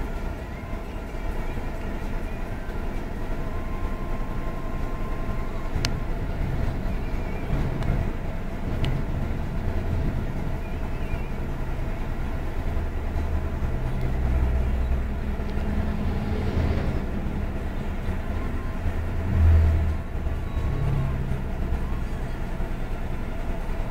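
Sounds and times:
road traffic rumble: 0.0s - 23.9s.

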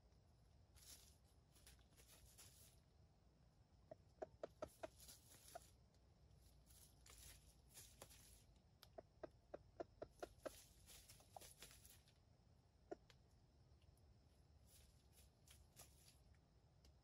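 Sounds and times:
rustling of dry leaves: 0.5s - 3.0s, 4.4s - 8.6s, 10.0s - 12.3s, 14.6s - 16.4s.

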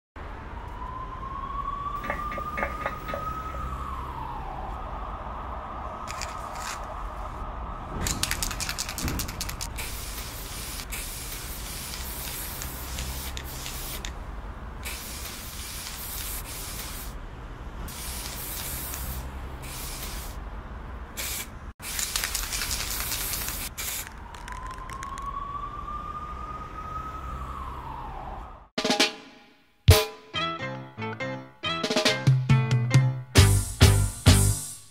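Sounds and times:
rising tone: 0.8s - 9.0s
spray paint can hissing: 6.1s - 6.8s, 8.0s - 14.2s, 14.8s - 17.2s, 17.9s - 20.4s, 21.2s - 25.2s.

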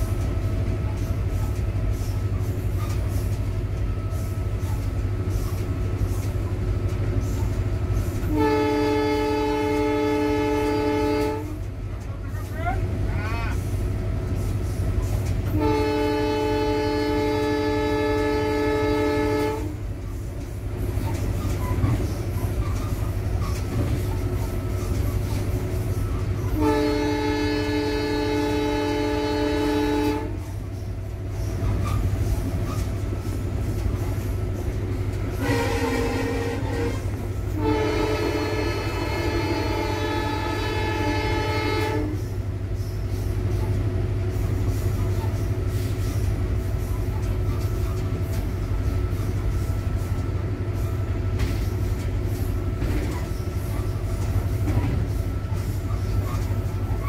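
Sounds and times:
rail noise: 0.0s - 57.0s
locomotive horn blasts: 8.1s - 11.7s, 15.4s - 19.9s, 26.4s - 30.6s, 35.3s - 42.4s.

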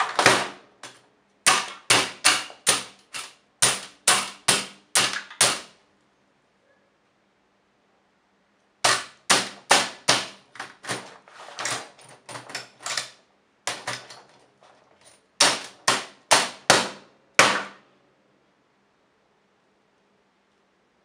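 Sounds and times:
typewriter rattling: 0.0s - 5.6s, 8.9s - 16.1s
hammer striking a typewriter: 0.0s - 5.8s, 8.8s - 11.2s, 13.7s - 14.3s, 15.4s - 17.8s.

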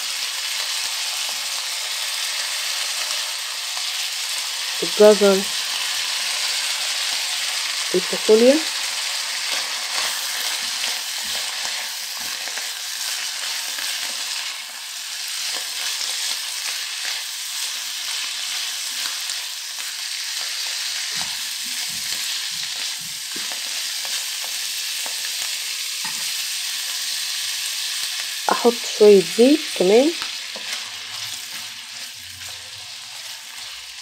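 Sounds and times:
food sizzling in a wok: 0.0s - 34.0s
spatula stirring and scraping: 30.2s - 34.0s.

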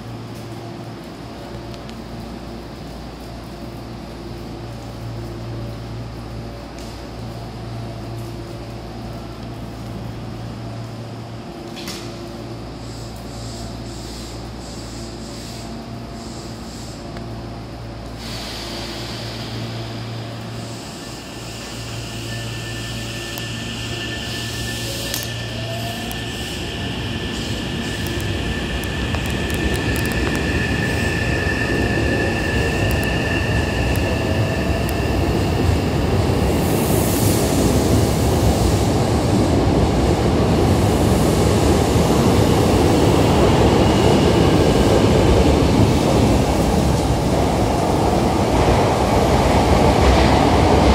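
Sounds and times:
electric train motor whine: 19.0s - 36.1s
wheels rumbling on rails: 22.3s - 50.9s.

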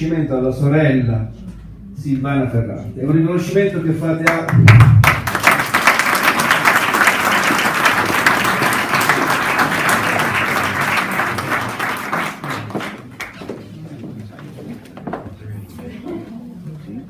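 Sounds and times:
audience applauding: 4.5s - 13.6s.

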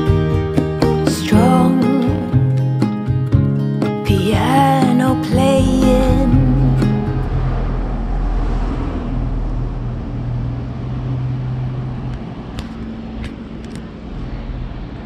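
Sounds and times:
street noise: 5.6s - 15.0s
vehicle engine hum: 5.6s - 15.0s.

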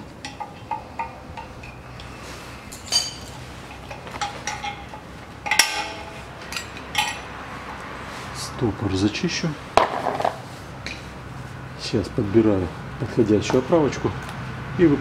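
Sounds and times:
metal tools clinking on steel: 0.0s - 7.8s.

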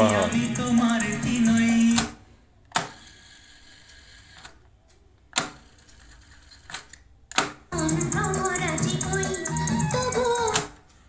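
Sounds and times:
tape transport whirring: 0.0s - 2.1s.

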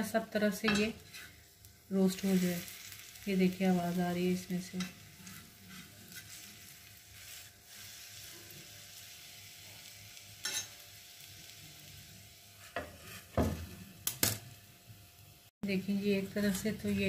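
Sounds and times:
oil sizzling on a hot pan: 0.0s - 17.0s.

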